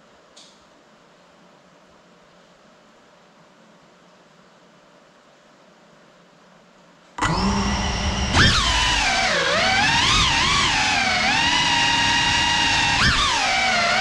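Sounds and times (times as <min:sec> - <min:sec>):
drone motors whining: 0:07.2 - 0:14.0.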